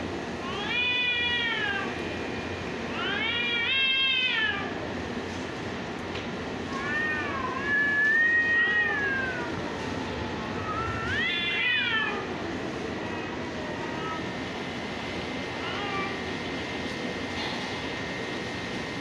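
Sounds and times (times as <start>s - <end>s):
cats yowling: 0.4s - 2.0s, 2.9s - 4.9s, 6.7s - 12.4s, 13.0s - 14.4s.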